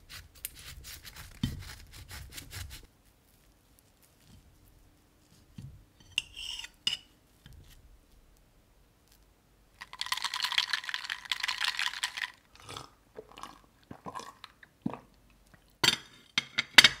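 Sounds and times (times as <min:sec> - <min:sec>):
cutlery scraping a ceramic plate: 0:06.0 - 0:07.1.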